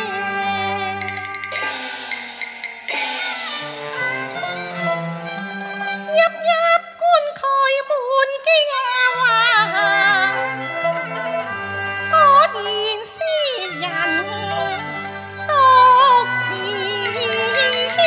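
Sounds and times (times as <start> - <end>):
woman singing opera: 0.0 - 1.2, 6.1 - 10.5, 12.1 - 14.8, 15.4 - 18.0
bowed string ensemble: 0.0 - 18.0.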